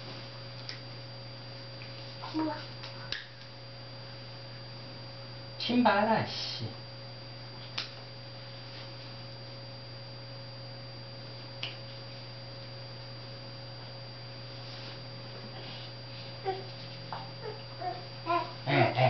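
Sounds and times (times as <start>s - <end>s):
low electrical hum: 0.0s - 19.0s.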